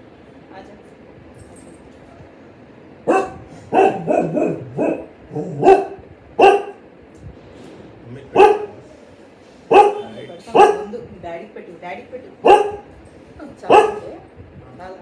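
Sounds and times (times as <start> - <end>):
dog barking: 3.0 - 6.8, 8.4 - 8.8, 9.7 - 10.9, 12.4 - 12.9, 13.7 - 14.3.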